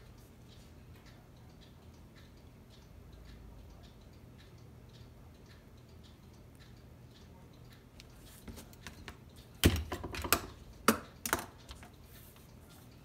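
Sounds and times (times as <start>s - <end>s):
clock ticking: 0.0s - 13.0s
sharp clicks and knocks: 8.0s - 12.0s.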